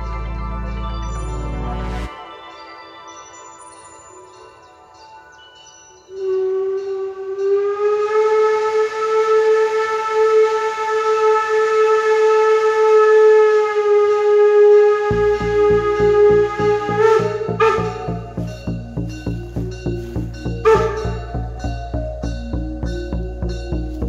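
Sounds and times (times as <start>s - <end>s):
steam locomotive whistle: 6.1s - 21.8s
low rhythmic locomotive pulsing: 6.1s - 24.0s.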